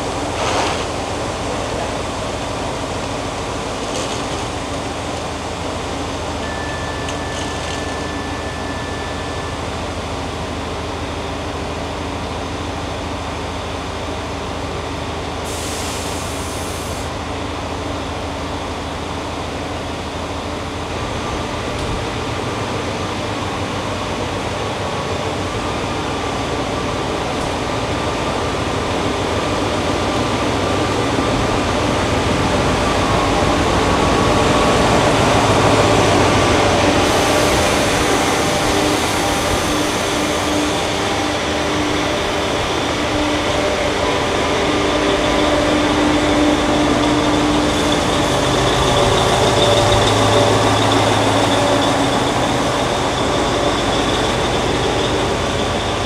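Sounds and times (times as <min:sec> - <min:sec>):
train engine hum: 0:00.0 - 0:56.0
air hiss burst: 0:15.5 - 0:17.1.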